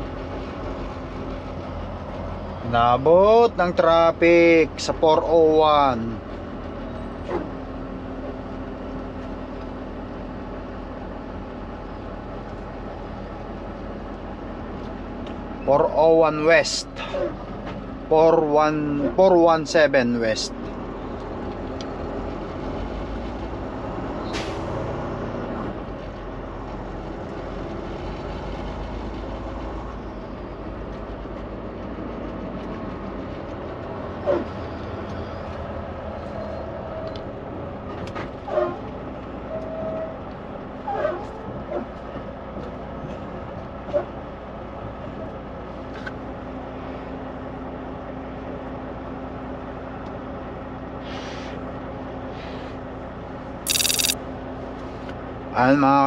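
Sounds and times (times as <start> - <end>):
truck engine and road drone: 0.0 - 55.6
short sharp squeaks and clicks: 53.7 - 54.2.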